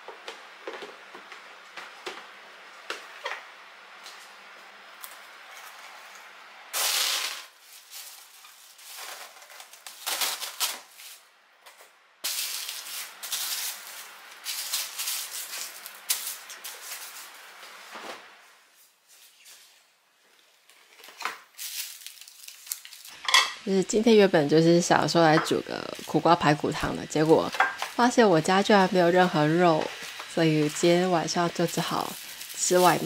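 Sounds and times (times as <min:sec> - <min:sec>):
plastic wrap crinkling: 0:06.8 - 0:11.2, 0:12.2 - 0:18.3, 0:20.6 - 0:23.2, 0:25.7 - 0:33.0.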